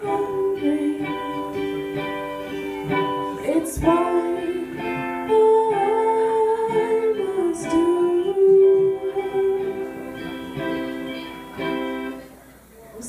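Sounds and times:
woman singing long notes: 0.0 - 2.1, 2.8 - 10.8.

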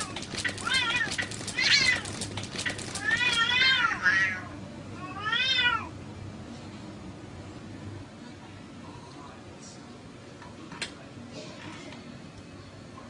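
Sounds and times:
cat rattling growl: 0.0 - 4.0
cats yowling: 0.0 - 5.9.

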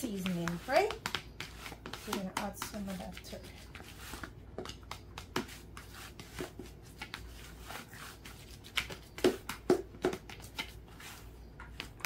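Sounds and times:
utensil scraping in a bowl: 0.0 - 9.6.

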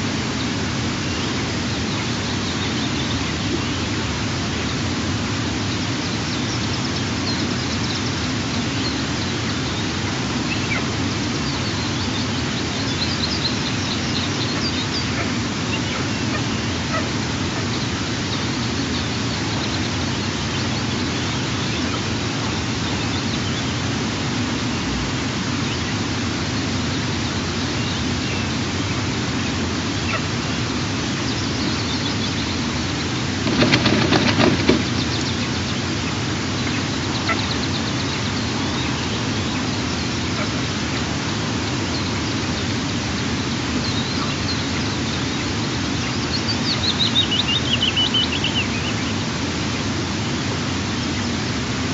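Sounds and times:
rustling: 33.4 - 35.2.

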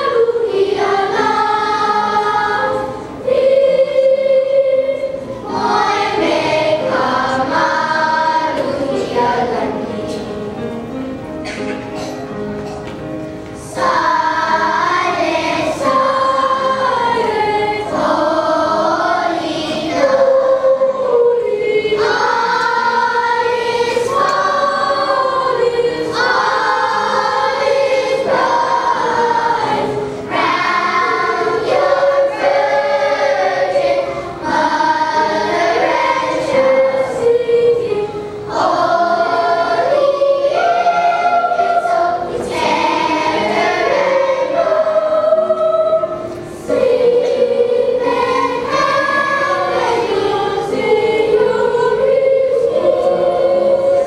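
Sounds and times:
children's choir singing: 0.0 - 54.0.

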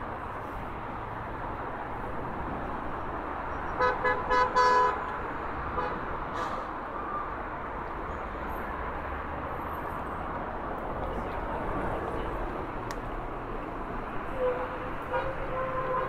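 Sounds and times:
street traffic: 0.0 - 16.0
car horn honking: 3.8 - 5.0.

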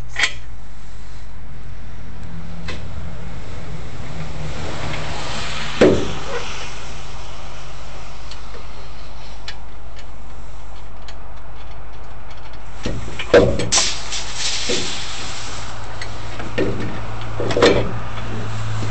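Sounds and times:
low mechanical hum: 0.0 - 18.9
thump and rustle: 5.8 - 6.5, 12.8 - 15.1, 16.4 - 18.9.

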